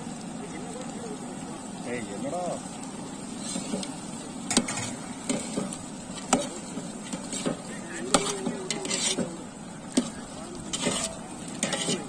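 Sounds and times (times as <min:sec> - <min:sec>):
meat sizzling: 0:00.0 - 0:12.0.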